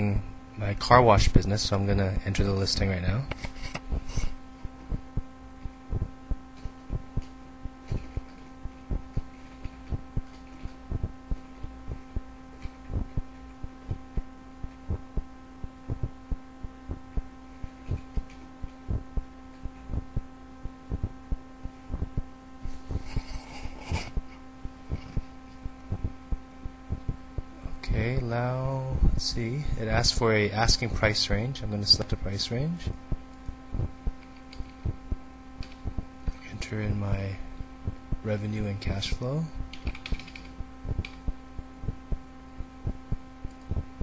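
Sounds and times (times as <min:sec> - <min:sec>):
steady electrical hum: 0:00.0 - 0:44.0
keyboard typing: 0:39.7 - 0:41.2.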